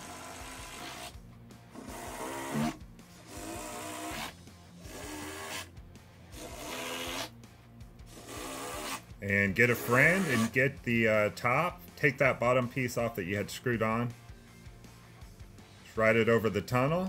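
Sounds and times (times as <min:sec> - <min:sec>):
cordless drill driving screws: 0:00.0 - 0:01.1, 0:01.8 - 0:05.7, 0:06.4 - 0:07.3, 0:08.1 - 0:09.0.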